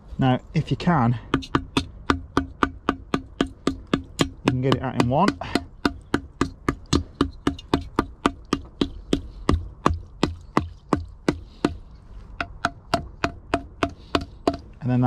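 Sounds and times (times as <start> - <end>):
hammer tapping on ice: 1.3 - 11.8, 12.4 - 14.8.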